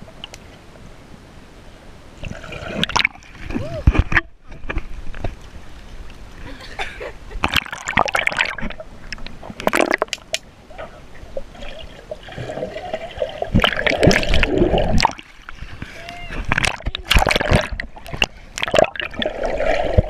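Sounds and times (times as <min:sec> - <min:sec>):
pool water splashing and sloshing: 0:02.2 - 0:20.0
muffled underwater bubbling: 0:10.7 - 0:15.3, 0:16.3 - 0:20.0.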